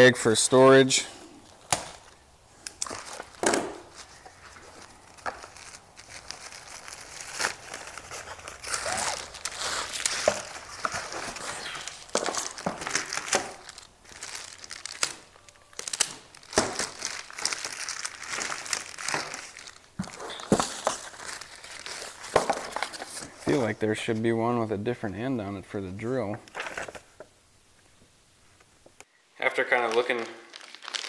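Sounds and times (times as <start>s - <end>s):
plastic wrap crinkling: 1.4s - 23.7s, 29.6s - 31.0s
nylon bag rustling: 2.8s - 23.7s.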